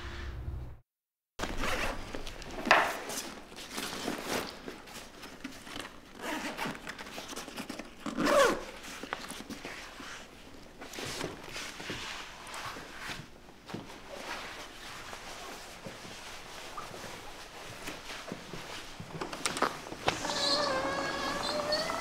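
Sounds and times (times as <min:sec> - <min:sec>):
zipper pulled on a bag: 0:08.0 - 0:08.8.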